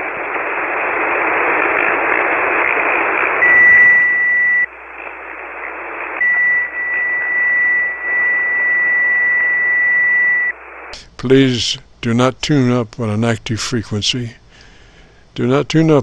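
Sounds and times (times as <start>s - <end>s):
radio receiver hiss: 0.0s - 16.0s
steady high whistle: 3.4s - 4.7s, 6.2s - 10.6s.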